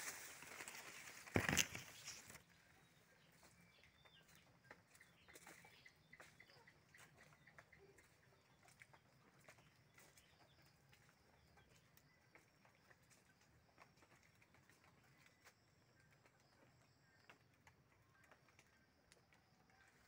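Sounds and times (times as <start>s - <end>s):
faint ticks and rustles: 0.0s - 20.0s
faint bird chirps: 1.1s - 13.6s.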